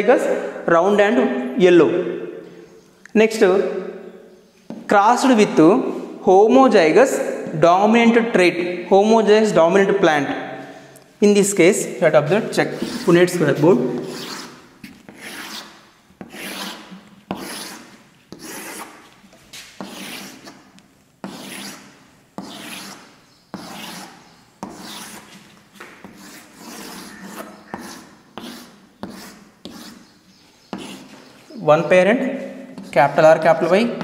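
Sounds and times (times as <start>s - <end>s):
chalk scraping on blackboard: 12.4s - 31.5s, 32.7s - 33.7s
chalk tapping on board: 15.1s - 19.0s, 22.4s - 30.1s, 30.7s - 31.2s.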